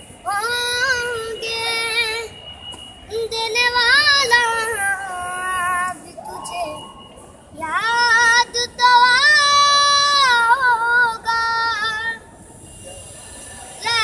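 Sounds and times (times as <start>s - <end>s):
boy singing: 0.2s - 2.3s, 3.1s - 6.8s, 7.6s - 12.3s, 13.8s - 14.0s.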